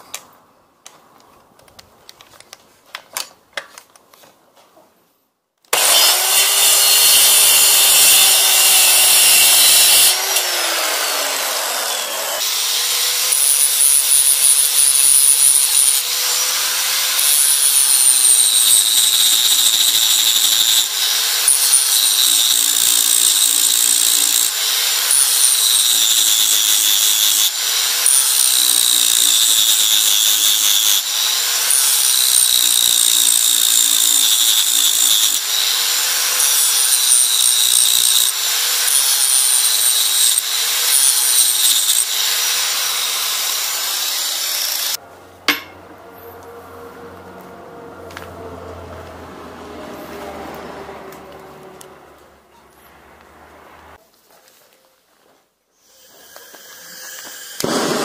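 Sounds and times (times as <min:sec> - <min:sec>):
angle grinder grinding steel: 0:05.7 - 0:46.6, 0:55.8 - 0:58.0.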